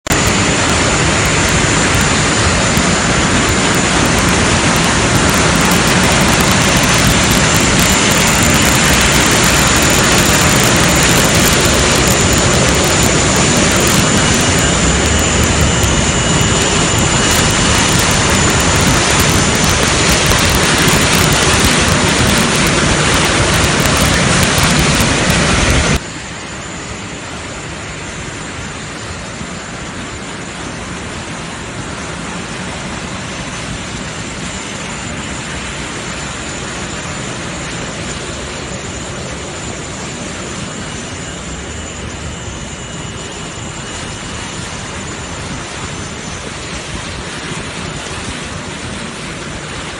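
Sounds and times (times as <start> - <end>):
jet turbines roaring: 0.0 - 49.9
faint high whine: 0.1 - 49.9.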